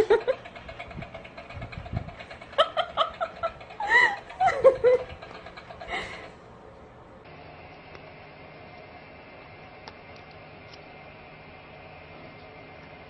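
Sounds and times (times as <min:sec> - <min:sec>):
person laughing: 0:00.0 - 0:00.5, 0:02.5 - 0:05.2.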